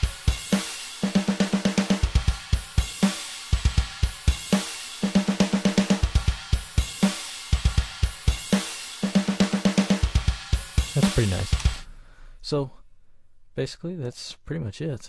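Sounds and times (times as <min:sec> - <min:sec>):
drum beat: 0:00.0 - 0:11.9
rapid snare hits: 0:00.0 - 0:11.9.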